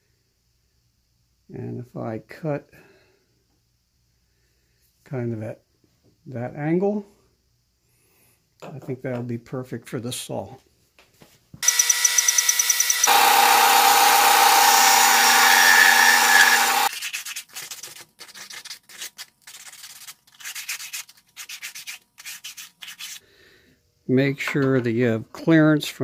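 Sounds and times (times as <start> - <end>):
electric power tool running: 11.6 - 16.9
sandpaper scraping on plastic: 15.5 - 23.2.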